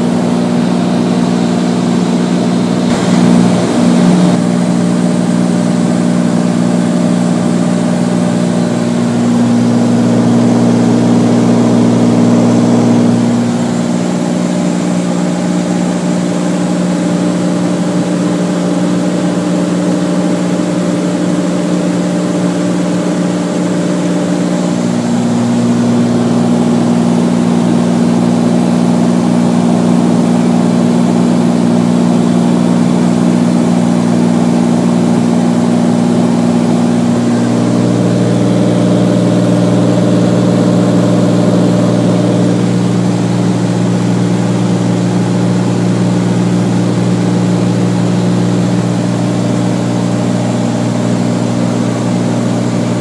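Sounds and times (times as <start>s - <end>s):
propeller plane engine droning: 0.0s - 53.0s
rush of air: 2.9s - 5.1s.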